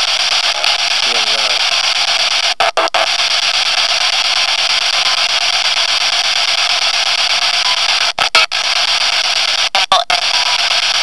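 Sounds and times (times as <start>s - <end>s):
loud static hiss: 0.0s - 11.0s.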